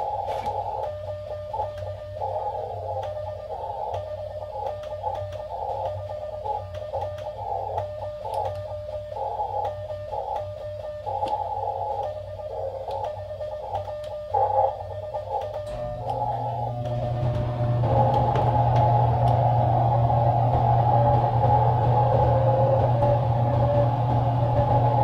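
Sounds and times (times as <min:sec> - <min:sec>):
low steady hum: 0:00.0 - 0:25.0
radio static hiss: 0:09.2 - 0:25.0.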